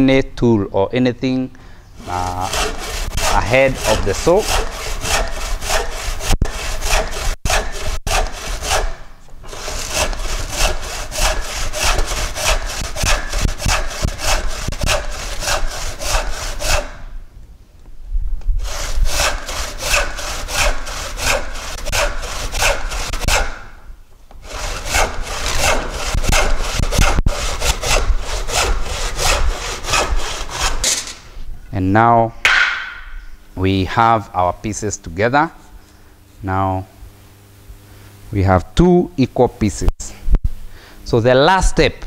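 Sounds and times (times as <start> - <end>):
hand saw cutting wood: 2.0 - 17.2, 18.6 - 23.8, 24.4 - 31.2.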